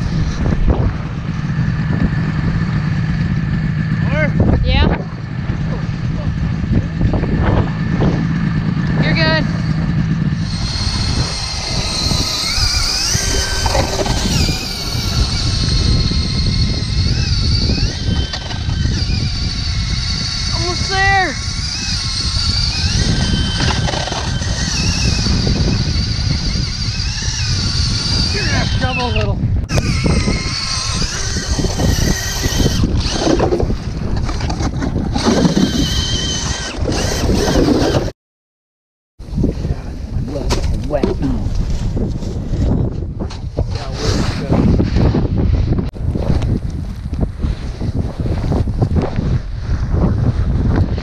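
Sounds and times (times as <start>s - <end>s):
auger cutting ice rumble: 0.0s - 38.1s, 39.4s - 51.0s
drill motor whining: 8.8s - 33.8s, 35.1s - 38.1s.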